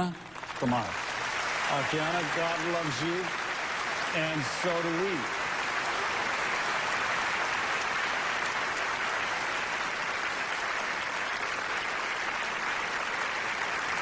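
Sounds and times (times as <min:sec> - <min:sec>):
audience applauding: 0:00.0 - 0:14.0.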